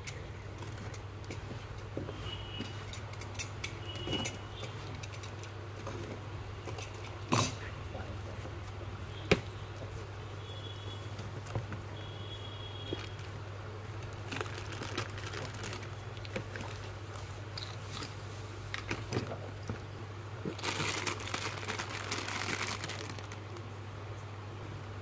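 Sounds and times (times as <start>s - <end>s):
plastic rustles and crinkles: 11.0s - 23.8s.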